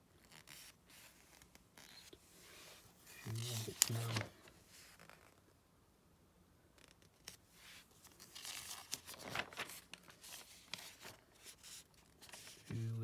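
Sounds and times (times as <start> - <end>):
magazine pages rustling: 3.0 - 5.4, 6.8 - 13.0.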